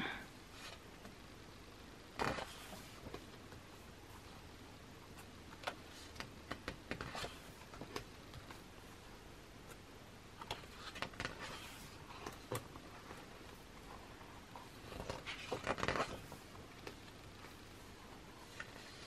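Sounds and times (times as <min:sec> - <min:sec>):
pages turning and rustling: 0:02.2 - 0:03.5, 0:05.1 - 0:08.7, 0:10.4 - 0:19.0.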